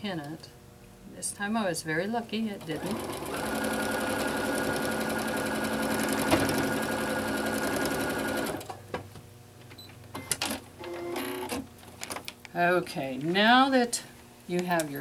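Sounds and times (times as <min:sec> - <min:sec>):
sewing machine stitching: 0:02.7 - 0:08.6.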